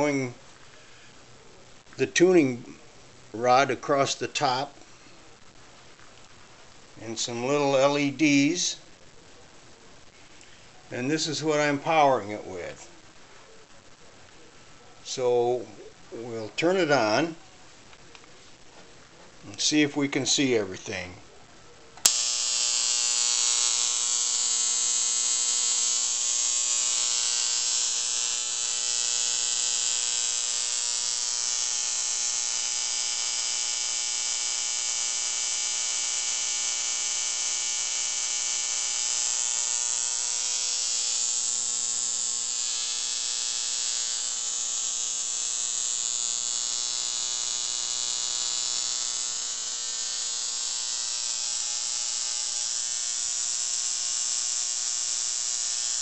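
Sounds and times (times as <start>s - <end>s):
mains hum: 0.0s - 56.0s
spark gap electrical buzz: 22.0s - 56.0s.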